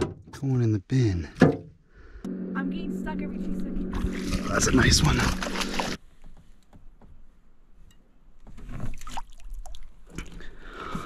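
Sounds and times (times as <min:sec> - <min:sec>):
water splashing and dripping: 0:04.0 - 0:06.0, 0:08.8 - 0:10.5.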